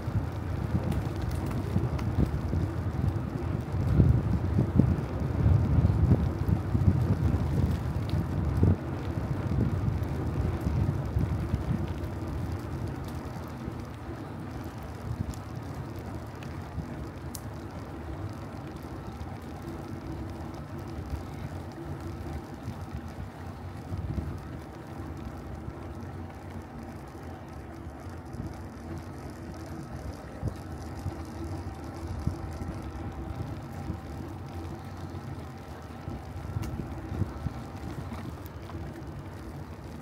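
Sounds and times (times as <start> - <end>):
wind on microphone: 0.0 - 12.7
bicycle tyres rumbling on road: 0.0 - 40.0.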